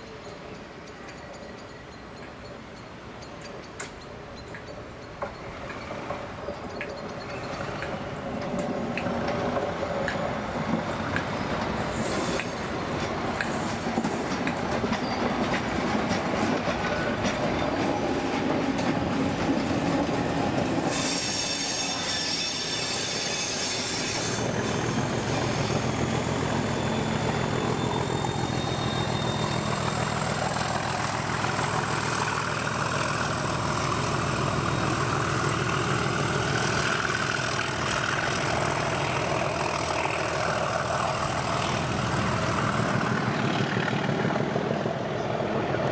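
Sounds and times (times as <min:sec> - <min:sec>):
train wheels clattering over rails: 0:03.2 - 0:45.9
wheels squealing: 0:03.6 - 0:15.5, 0:19.6 - 0:44.0.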